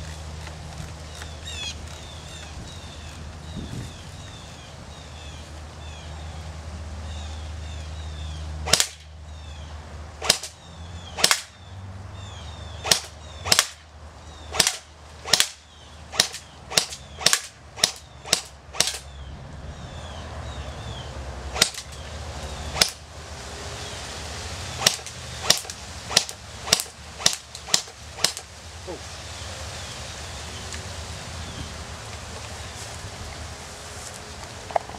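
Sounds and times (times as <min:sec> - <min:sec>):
airsoft rifle shots: 0:08.7 - 0:09.1, 0:10.2 - 0:10.6, 0:11.2 - 0:11.6, 0:12.8 - 0:13.8, 0:14.5 - 0:19.1, 0:21.6 - 0:22.0, 0:22.8 - 0:23.0, 0:24.8 - 0:28.5.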